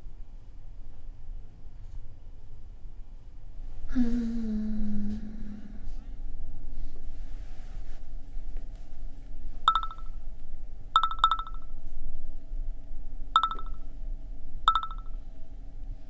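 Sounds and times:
phone notification chimes: 0:09.7 - 0:10.2, 0:11.0 - 0:11.7, 0:13.4 - 0:13.8, 0:14.7 - 0:15.2.

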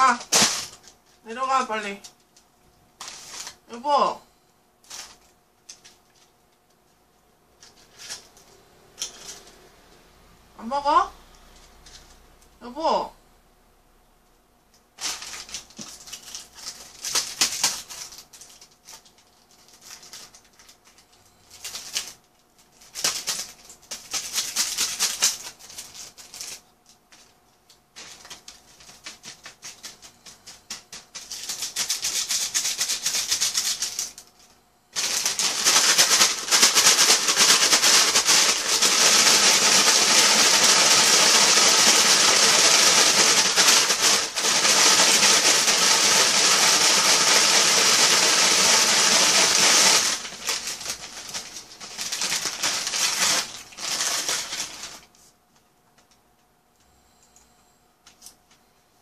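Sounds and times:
paper packaging rustling: 0:00.0 - 0:01.2, 0:02.0 - 0:03.7, 0:04.8 - 0:06.4, 0:07.6 - 0:09.6, 0:15.0 - 0:55.4.

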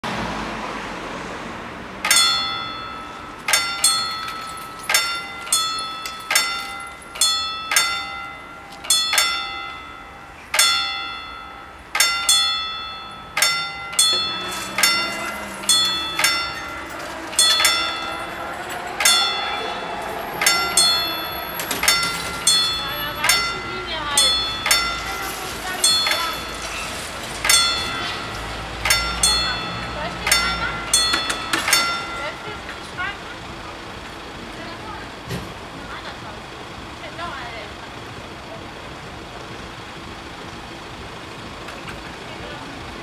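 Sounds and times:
level crossing warning bells: 0:01.7 - 0:43.0.

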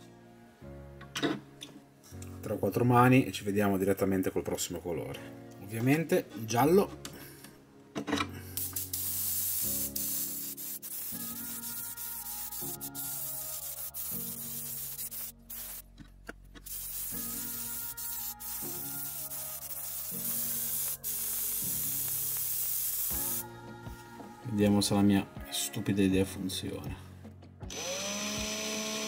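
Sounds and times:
background music: 0:00.0 - 0:29.0
airbrush spraying hiss: 0:08.6 - 0:15.8, 0:16.6 - 0:23.5.

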